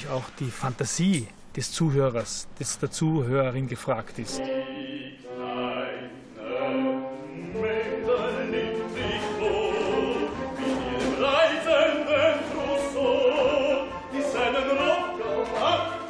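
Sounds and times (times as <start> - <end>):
operetta singing with vibrato: 4.3 - 16.0
orchestra playing: 4.3 - 16.0.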